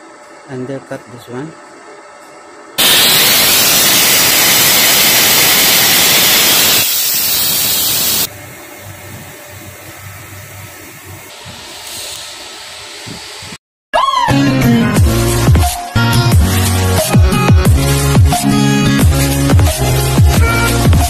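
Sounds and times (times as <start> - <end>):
spray gun hissing: 2.8 - 8.3.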